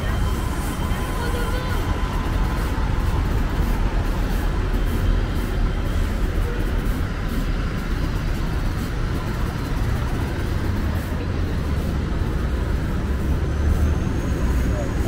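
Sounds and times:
city traffic rumble: 0.0 - 15.0.

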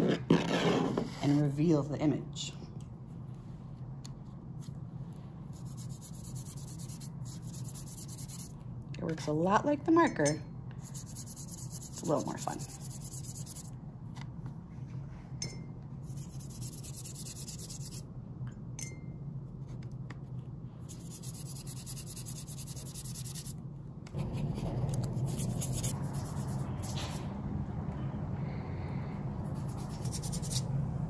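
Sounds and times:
room hum: 0.0 - 31.0
brush stroking paper: 24.2 - 27.2.

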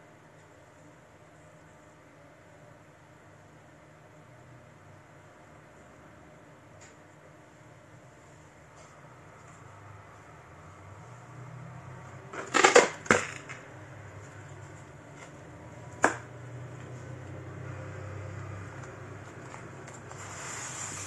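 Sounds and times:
low steady hum: 0.0 - 21.0
objects knocking and scraping: 12.3 - 13.7.

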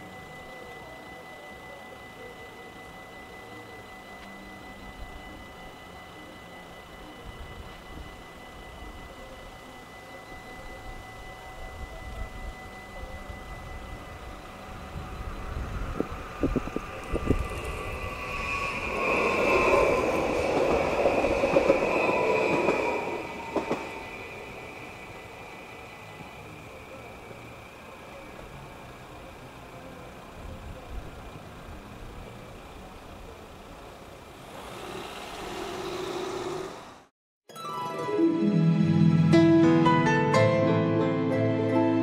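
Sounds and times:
rail hiss: 2.5 - 37.1
train rumble: 3.1 - 37.1
road traffic background: 24.4 - 37.1
car engine and tyres moving off: 33.9 - 37.1.

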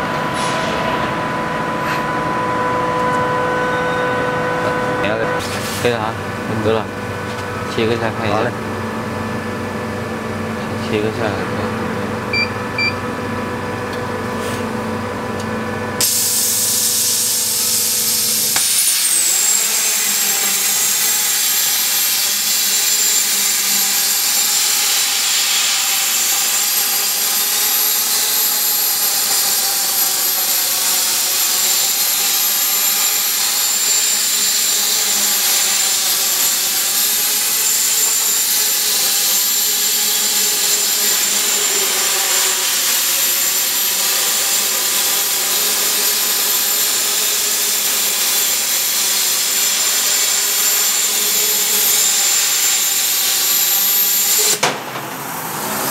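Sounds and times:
thin high whine: 0.0 - 5.7
machine hum: 0.0 - 46.8
plasma torch cutting hiss: 16.0 - 54.6.

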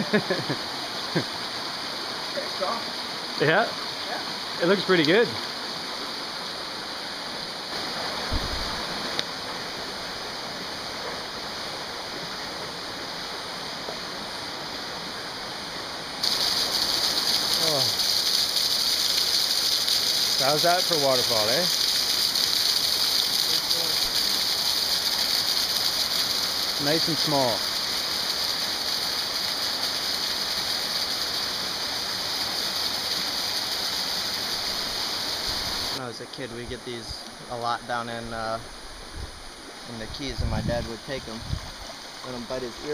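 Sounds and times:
waterfall splashing into pool: 0.0 - 36.0, 40.2 - 42.9
river flowing over rocks: 0.8 - 36.0
low thump: 8.2 - 8.8.

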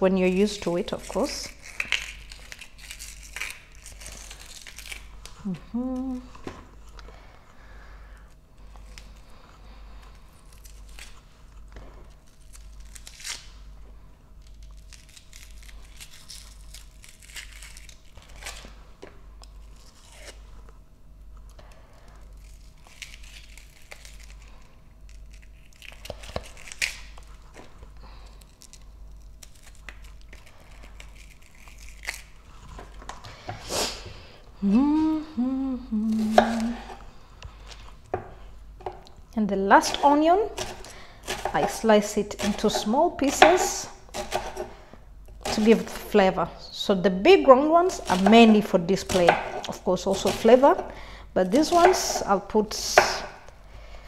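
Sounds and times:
onion layers peeled by hand: 0.0 - 54.0
person humming: 5.4 - 6.4, 34.6 - 37.0.

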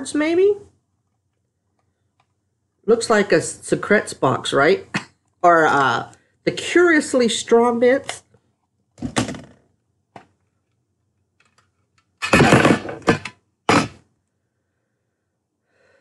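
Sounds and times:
card box thunk: 12.2 - 14.0.

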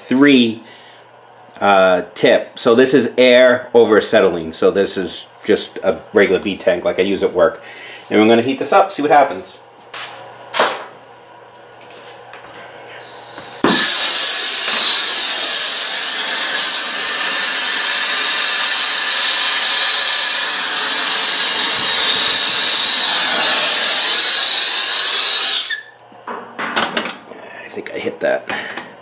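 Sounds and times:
torch flame hissing: 13.0 - 25.8.

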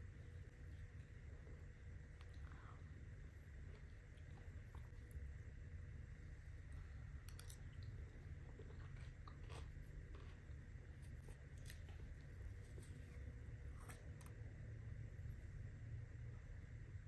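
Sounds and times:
chewing cucumber: 7.2 - 12.7.

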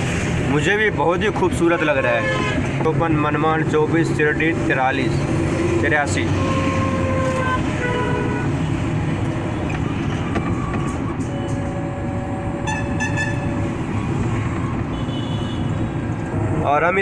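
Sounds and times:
road and wind rumble inside vehicle: 0.0 - 17.0
vehicle horns: 1.7 - 2.8, 6.2 - 8.9, 12.6 - 13.6, 14.9 - 16.0.

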